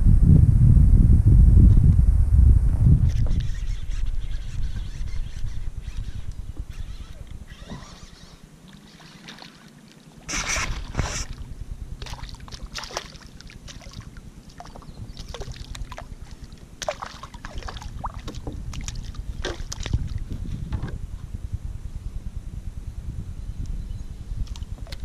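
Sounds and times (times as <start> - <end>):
water splashing beside kayak: 6.6 - 21.0
knocks against kayak hull: 18.2 - 18.6, 20.7 - 21.0.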